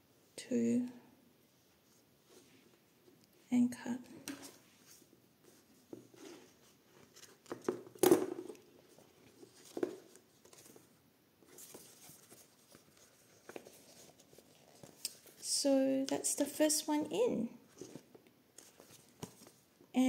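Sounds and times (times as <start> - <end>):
paper and card rustling: 4.2 - 16.2, 17.7 - 19.7.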